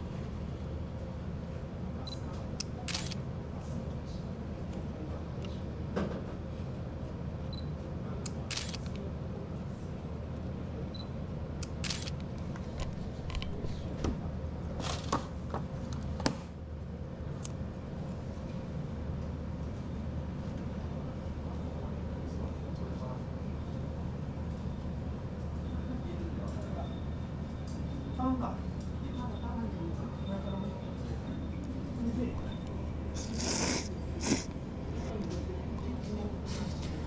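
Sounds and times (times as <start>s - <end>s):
low room hum: 0.0s - 37.0s
camera shutter clicks: 2.9s - 3.2s, 8.5s - 8.9s, 11.6s - 12.2s.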